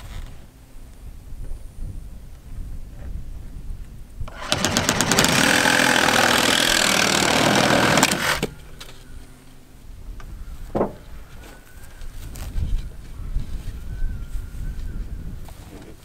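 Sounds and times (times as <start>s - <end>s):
reciprocating saw cutting pipe: 4.3s - 8.6s.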